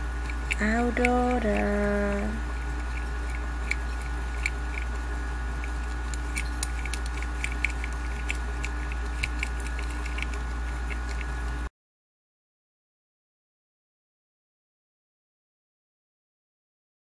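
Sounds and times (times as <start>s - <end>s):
low hum: 0.0s - 11.7s
fingernails clicking on plastic toy: 0.2s - 4.9s, 5.6s - 11.3s.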